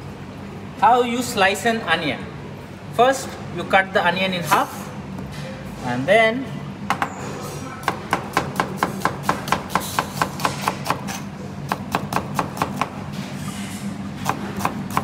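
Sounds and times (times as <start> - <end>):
knife chopping on cutting board: 7.8 - 13.0, 14.2 - 15.0.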